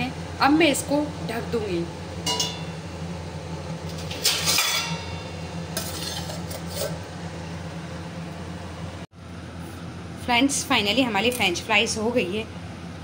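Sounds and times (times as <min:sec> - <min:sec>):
steady low hum: 0:00.0 - 0:13.0
metal lid clattering on pot: 0:02.2 - 0:02.7, 0:04.0 - 0:05.2.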